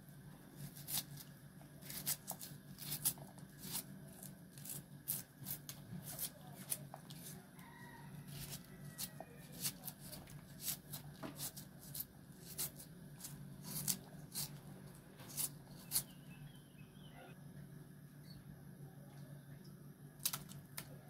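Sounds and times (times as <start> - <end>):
steady low hum: 0.0 - 21.0
knife slicing onion: 0.6 - 7.5, 8.2 - 16.2.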